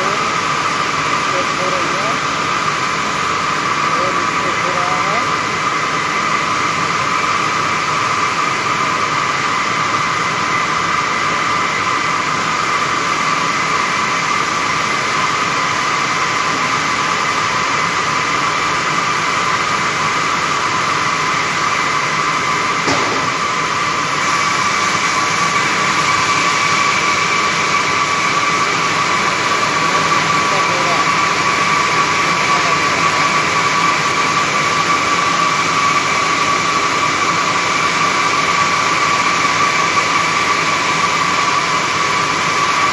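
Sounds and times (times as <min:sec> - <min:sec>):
loom machine din with high whine: 0:00.0 - 0:42.9
sharp click: 0:22.9 - 0:23.4.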